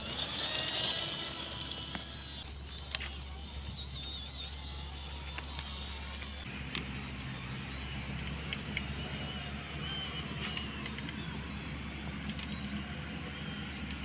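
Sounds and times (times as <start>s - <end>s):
electric motor and gears whining: 0.0s - 14.0s
small clicks: 10.3s - 11.3s.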